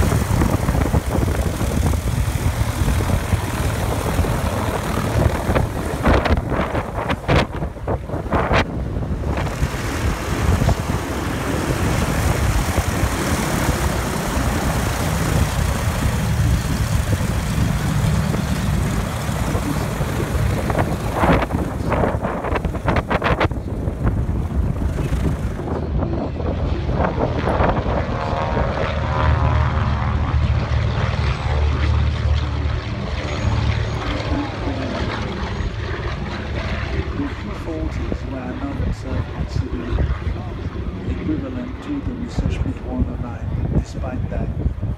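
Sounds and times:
wind buffeting microphone: 0.0s - 32.9s, 33.7s - 44.9s
propeller aircraft engine rumble: 0.0s - 44.9s.

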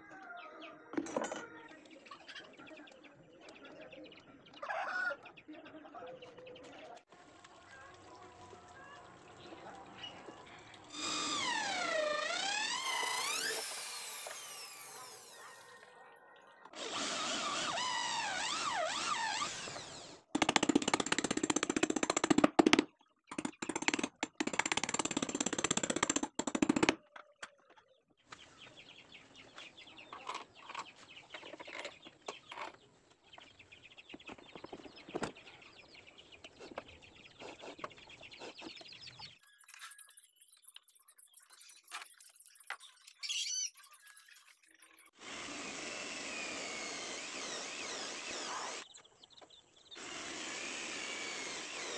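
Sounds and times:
cordless drill boring into wood: 10.9s - 15.8s, 16.8s - 22.8s, 23.7s - 26.9s, 45.1s - 48.8s, 50.0s - 51.9s.

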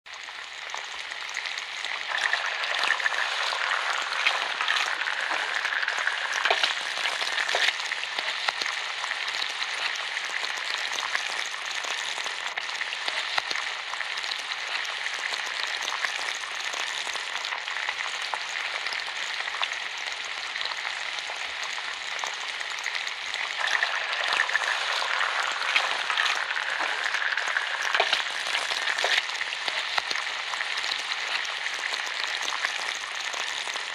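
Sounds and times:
bacon sizzling and crackling: 0.1s - 33.9s.

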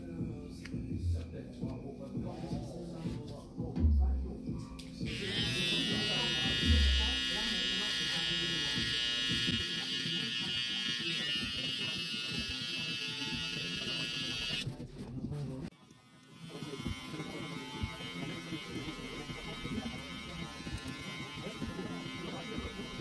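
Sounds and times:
electric hair trimmer buzzing: 5.1s - 14.6s, 15.8s - 23.0s
hair clipper buzzing: 5.1s - 14.6s, 15.8s - 23.0s.

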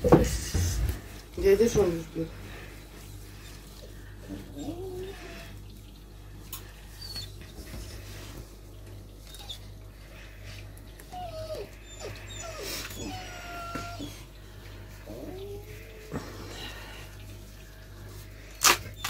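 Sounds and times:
puppy whining: 4.3s - 5.6s, 6.9s - 7.5s, 9.3s - 9.8s, 11.0s - 14.4s, 15.0s - 16.7s.

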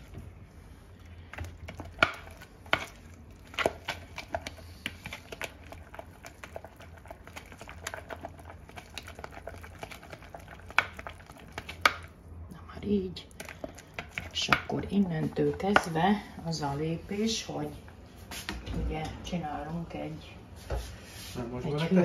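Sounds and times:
whisk scraping against a bowl: 1.7s - 11.8s.

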